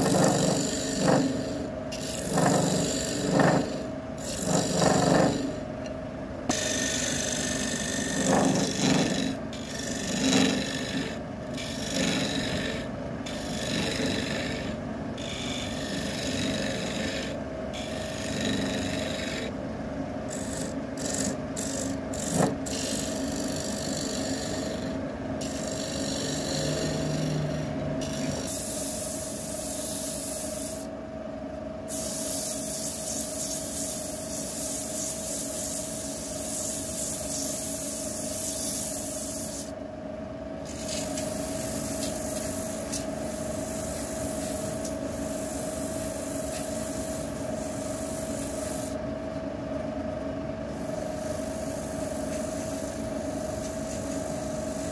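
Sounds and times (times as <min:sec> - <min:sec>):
tool rasping against wood: 0:00.0 - 0:05.6, 0:06.5 - 0:19.5, 0:20.3 - 0:28.6.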